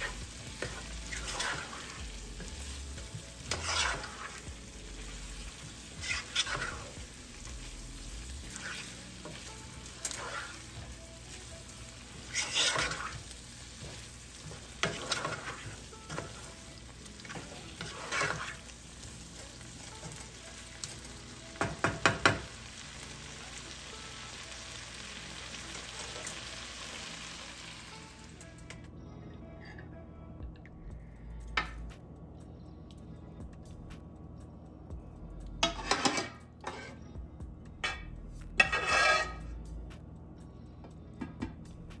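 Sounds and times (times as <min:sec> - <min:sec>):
wooden spatula scraping pan: 0:00.0 - 0:02.6, 0:03.4 - 0:04.4, 0:05.9 - 0:07.0, 0:08.4 - 0:10.9, 0:12.2 - 0:13.2, 0:13.8 - 0:16.5, 0:17.3 - 0:18.7, 0:35.7 - 0:37.0, 0:38.6 - 0:39.4
food sizzling in frying pan: 0:00.0 - 0:28.4
spatula knocking against pan: 0:21.6 - 0:22.5.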